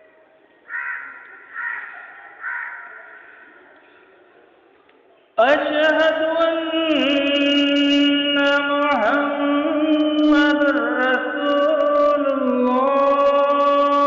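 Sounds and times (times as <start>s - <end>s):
man chanting call to prayer: 5.4s - 14.0s.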